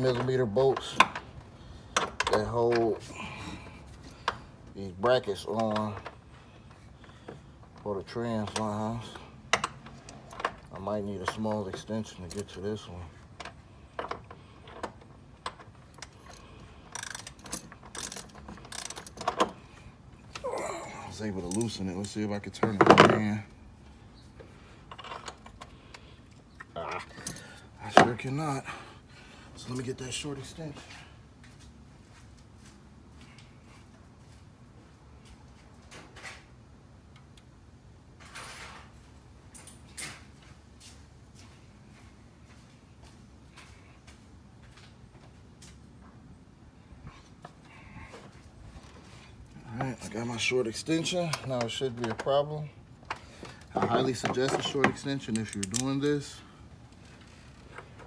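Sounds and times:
socket wrench ratchet clicking: 16.9s - 19.2s
hand tools clattering: 53.5s - 56.4s.

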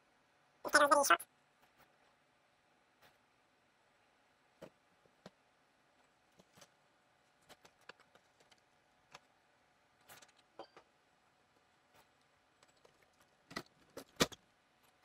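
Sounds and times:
faint clicks and taps: 4.6s - 5.4s, 7.4s - 9.3s.

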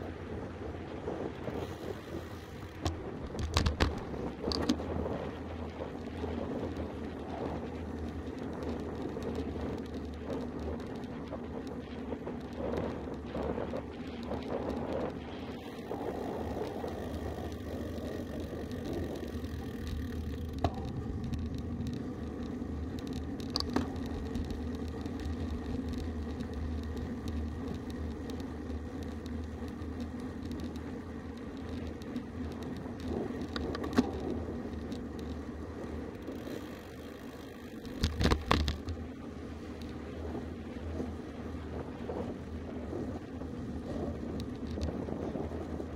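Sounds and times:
bike tyre and wind noise: 0.0s - 45.9s
sharp clicks and knocks: 2.8s - 4.9s, 18.6s - 35.4s, 37.8s - 39.0s.

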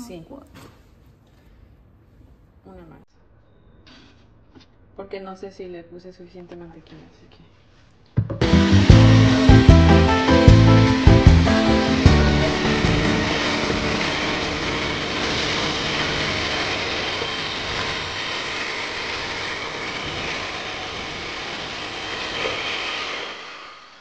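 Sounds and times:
electric hand mixer whirring: 8.4s - 24.0s.

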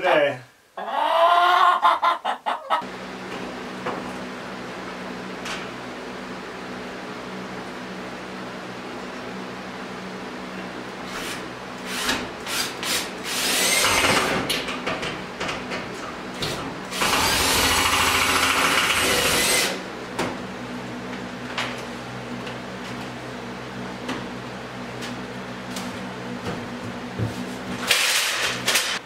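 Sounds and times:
power drill running: 11.9s - 14.4s, 16.9s - 19.8s.

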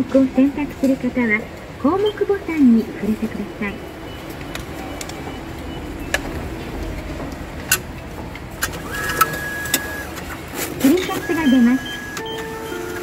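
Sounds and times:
high mechanical whine: 3.2s - 13.0s
bill slot clicks: 8.6s - 13.0s.

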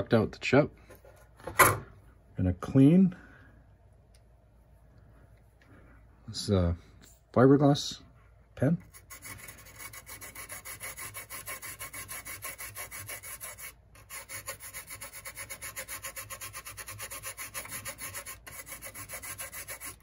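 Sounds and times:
scratch pen scrubbing circuit board: 8.8s - 20.0s.

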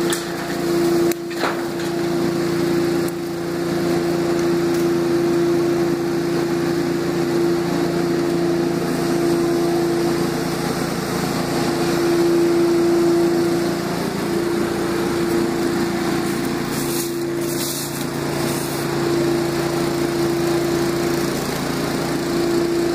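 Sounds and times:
small gas engine running: 0.0s - 22.9s
short scratchy crackles: 16.2s - 18.9s.

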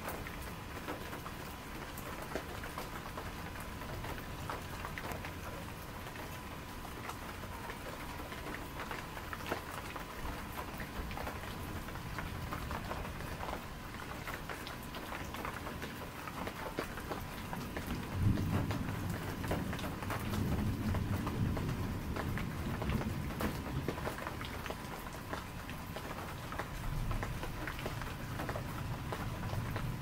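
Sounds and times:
rain pattering: 0.0s - 30.0s
distant thunder rumble: 17.8s - 24.1s.

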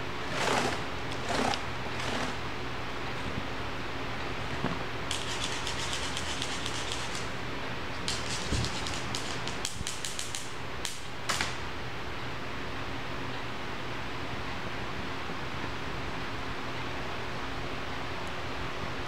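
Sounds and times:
steady background hiss: 0.0s - 19.0s
scratchy clicking and rustling: 5.1s - 7.3s, 8.0s - 10.5s.

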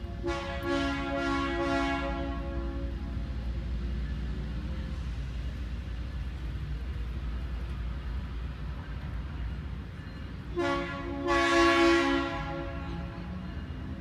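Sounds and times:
low locomotive rumble: 0.0s - 14.0s
locomotive air horn blasts: 0.1s - 3.1s, 10.5s - 13.3s.

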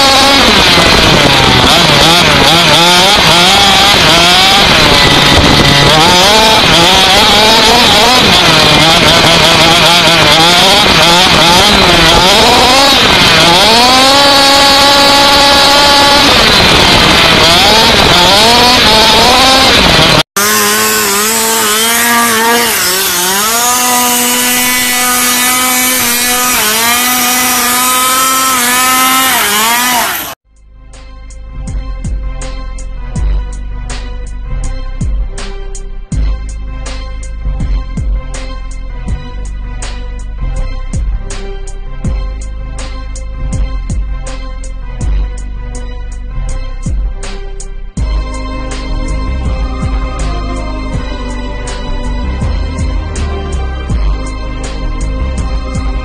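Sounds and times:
rushing noise: 0.0s - 30.4s
small engine revving: 0.0s - 30.4s, 32.4s - 56.0s.

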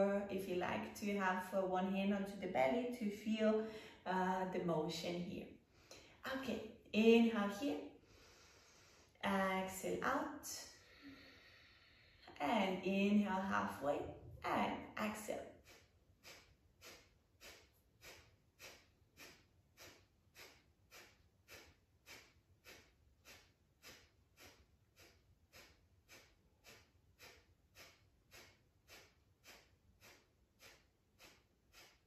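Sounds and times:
sharp nasal exhales: 8.0s - 9.2s, 10.7s - 12.3s, 15.5s - 32.0s.

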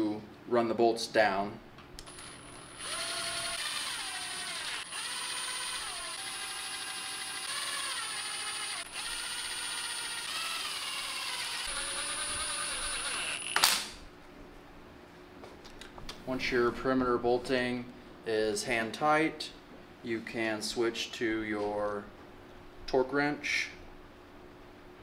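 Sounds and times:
impact wrench air motor whining: 2.0s - 14.0s
impact wrench loud burst: 2.1s - 14.0s.

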